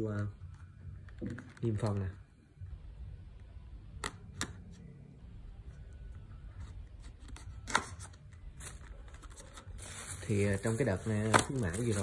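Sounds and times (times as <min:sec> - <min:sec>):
box being handled: 0:08.6 - 0:12.0.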